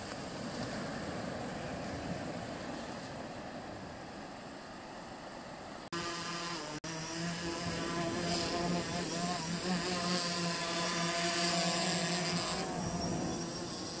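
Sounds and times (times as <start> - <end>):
drone propellers buzzing: 6.0 - 14.0.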